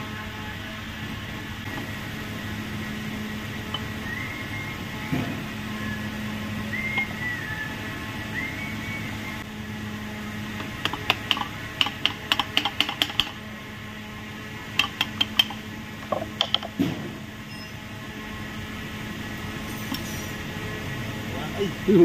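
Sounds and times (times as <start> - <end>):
low hum: 0.0 - 11.8.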